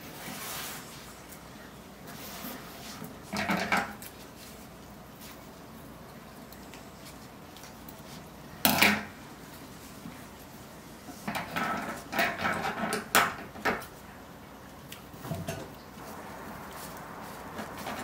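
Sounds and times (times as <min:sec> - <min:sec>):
rustling: 0:16.0 - 0:18.0.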